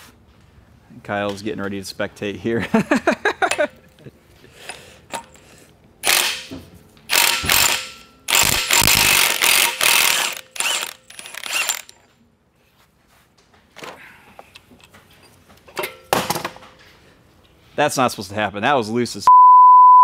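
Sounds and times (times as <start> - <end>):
impact wrench hammering: 6.0 - 12.0.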